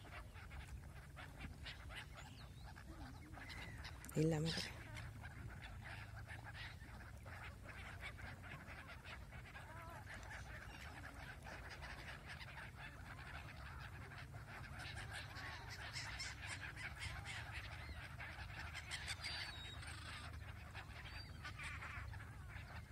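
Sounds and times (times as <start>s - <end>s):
gulls calling: 0.0s - 22.9s.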